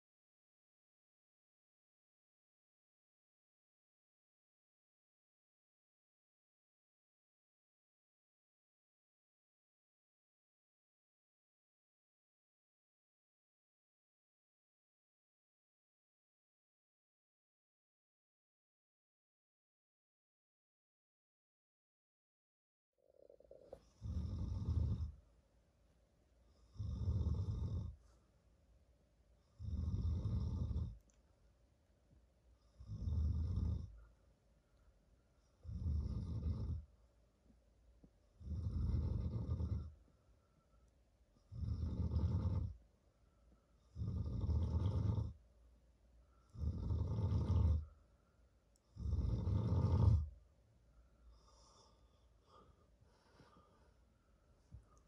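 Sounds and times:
man snoring: 0:23.3 - 0:25.2, 0:26.7 - 0:28.0, 0:29.6 - 0:31.0, 0:32.8 - 0:34.0, 0:35.6 - 0:36.8, 0:38.4 - 0:39.9, 0:41.5 - 0:42.8, 0:43.9 - 0:45.4, 0:46.5 - 0:47.9, 0:49.0 - 0:50.3.

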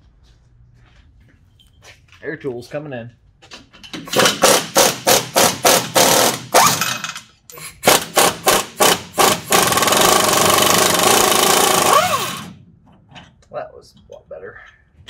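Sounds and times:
pneumatic impact wrench hammering: 0:03.8 - 0:12.6.

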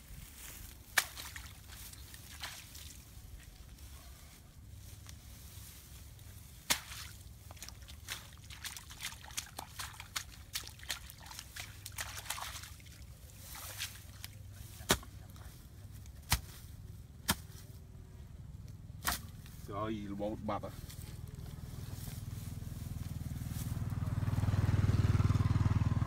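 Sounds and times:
feathers being plucked: 0:06.6 - 0:12.7.

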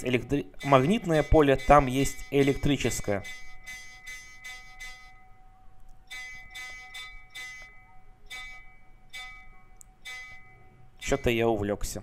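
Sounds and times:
metal temple bells ringing: 0:00.0 - 0:05.5, 0:06.1 - 0:11.8.

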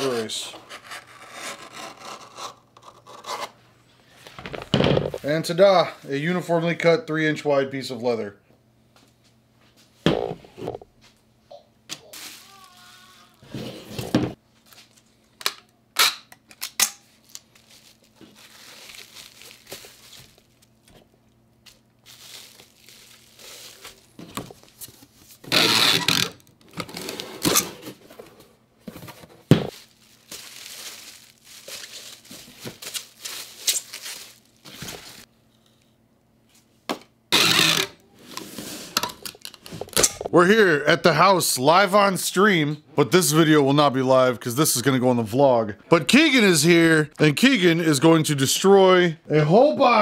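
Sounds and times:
packing tape ripping: 0:15.4 - 0:20.7, 0:25.4 - 0:27.7, 0:29.7 - 0:35.2, 0:37.3 - 0:38.0.

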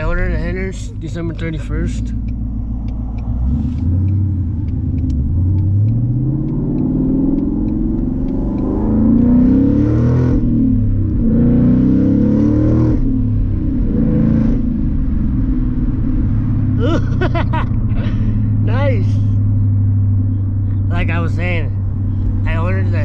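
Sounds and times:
turn signal ticking: 0:00.0 - 0:11.6
car exhaust accelerating: 0:00.0 - 0:23.0.

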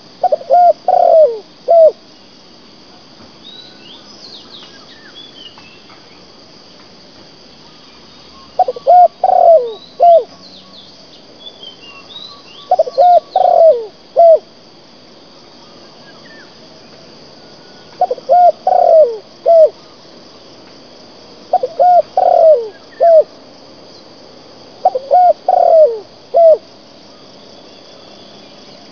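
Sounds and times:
high insect buzz: 0:00.0 - 0:28.9
dove cooing: 0:00.2 - 0:02.0, 0:08.6 - 0:10.4, 0:12.6 - 0:14.5, 0:18.0 - 0:20.0, 0:21.5 - 0:23.3, 0:24.8 - 0:26.7.

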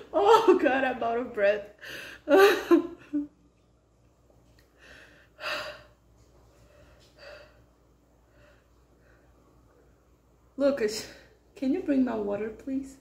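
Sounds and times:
woman breathing hard: 0:01.8 - 0:02.3, 0:04.7 - 0:09.4.

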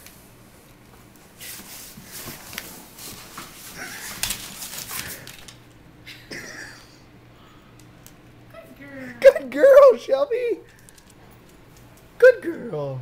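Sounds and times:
cardboard rustling and scraping: 0:01.4 - 0:05.5.

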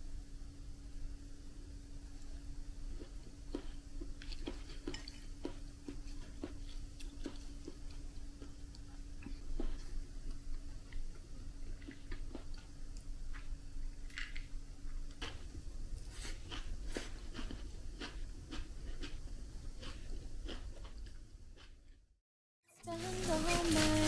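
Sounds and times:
faint steady hum: 0:00.0 - 0:22.1, 0:22.7 - 0:24.0
toast crunching: 0:02.9 - 0:21.9.

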